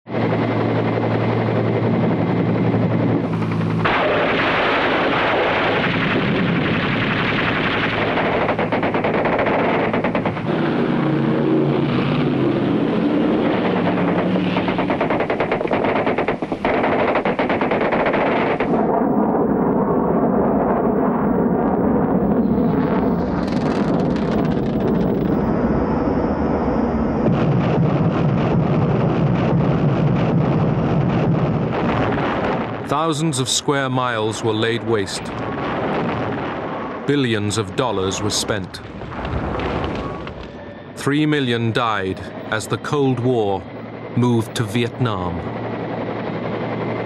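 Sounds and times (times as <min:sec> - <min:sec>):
low drone: 0:00.1 - 0:47.0
engine noise: 0:00.2 - 0:30.4
machine-gun fire: 0:03.8 - 0:11.9, 0:12.6 - 0:19.2.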